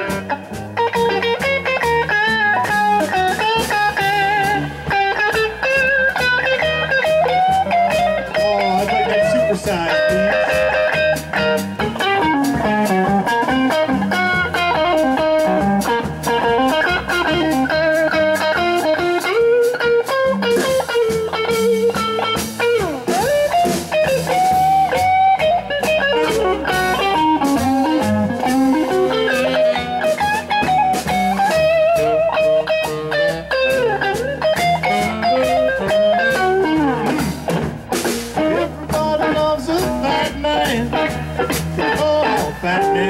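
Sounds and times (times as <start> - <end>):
drum kit: 0.0 - 43.0
electric guitar bending notes: 0.0 - 43.0
upright bass: 0.0 - 43.0.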